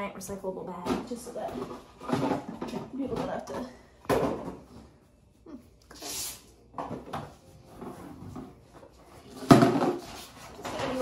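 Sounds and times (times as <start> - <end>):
loud clatter of recyclables: 0.8 - 4.6.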